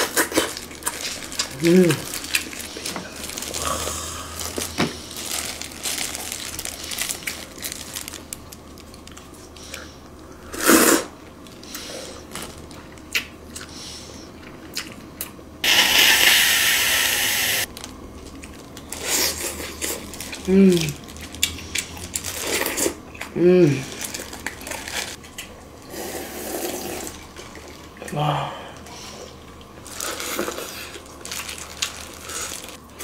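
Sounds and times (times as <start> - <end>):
chewing: 0.0 - 4.8, 18.2 - 25.7
plastic gloves crinkling: 0.2 - 9.6, 12.2 - 12.8, 17.6 - 21.4, 22.0 - 22.9, 23.8 - 25.2, 29.8 - 32.8
loud steady hiss: 15.6 - 17.7.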